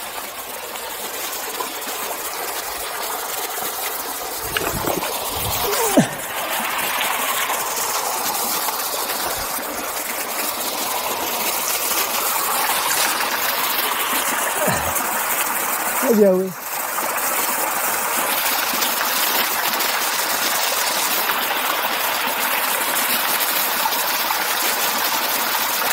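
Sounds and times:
waterfall rushing: 0:04.0 - 0:16.4.

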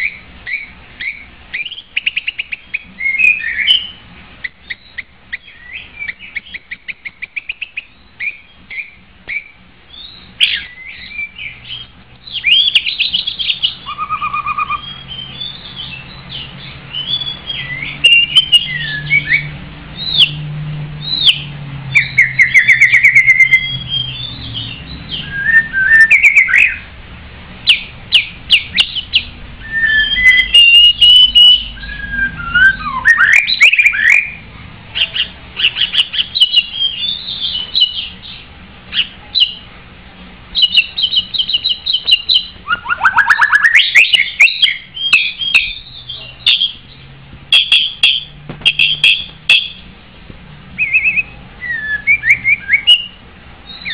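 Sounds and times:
bird singing whistles and trills: 0:00.0 - 0:26.9, 0:27.6 - 0:34.4, 0:35.0 - 0:39.7, 0:40.6 - 0:49.8, 0:50.8 - 0:53.9.

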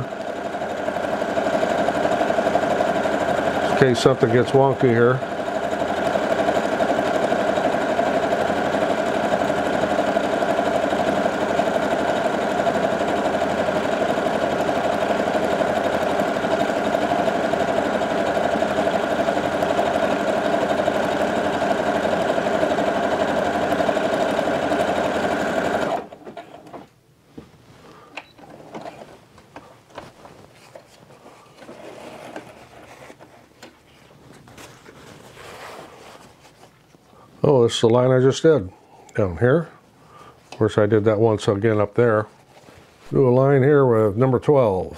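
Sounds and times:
sewing machine stitching: 0:00.0 - 0:26.9, 0:31.6 - 0:33.2
faint rustles and clicks: 0:27.3 - 0:37.2.

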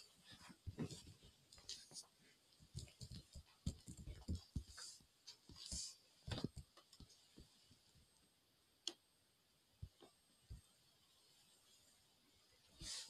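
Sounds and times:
quiet room hiss: 0:00.0 - 0:13.0
faint low thuds and knocks: 0:00.4 - 0:01.4, 0:02.6 - 0:07.5.

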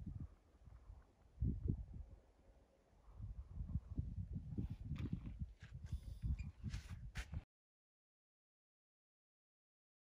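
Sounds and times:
shoe scuffs: 0:05.6 - 0:07.4.

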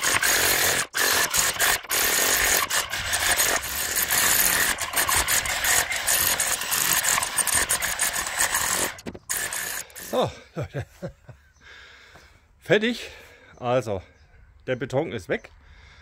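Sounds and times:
demolition hammer chiselling concrete: 0:00.0 - 0:10.2.

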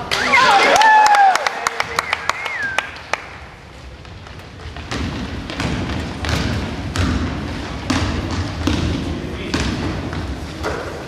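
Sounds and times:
echoing gym murmur: 0:00.0 - 0:11.0
basketball thudding on gym floor: 0:04.7 - 0:10.8.

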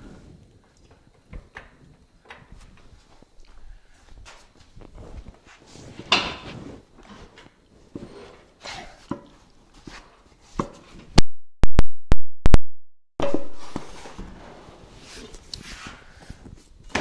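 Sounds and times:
metal clanks and scrapes: 0:13.2 - 0:15.4.

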